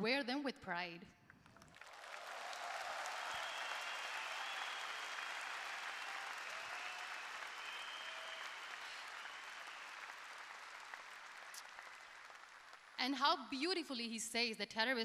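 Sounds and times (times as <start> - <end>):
audience applauding: 1.4 - 13.0.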